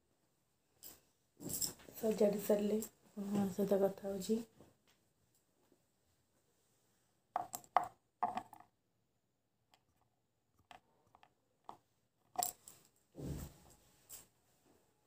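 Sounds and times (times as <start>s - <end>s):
small hard objects clicking: 7.4s - 8.6s, 10.6s - 12.7s.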